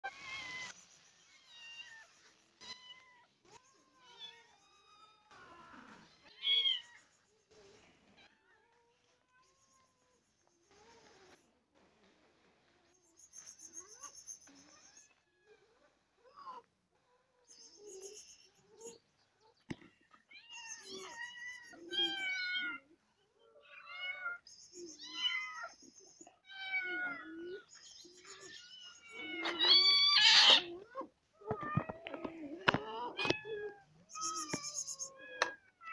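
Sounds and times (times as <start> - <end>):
cats and kittens meowing: 0.0 - 11.4, 13.8 - 35.9
thin high kitten cry: 28.6 - 32.0.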